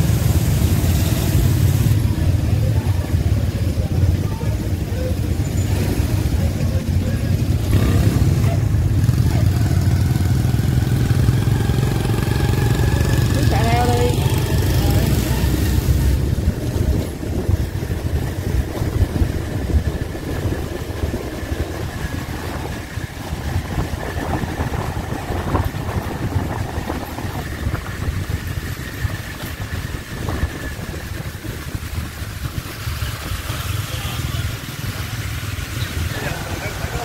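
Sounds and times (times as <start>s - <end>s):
vehicle engine and road rumble: 0.0s - 37.0s.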